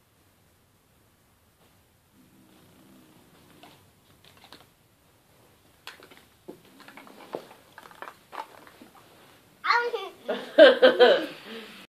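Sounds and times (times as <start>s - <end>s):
kitten growling low: 2.1s - 3.9s.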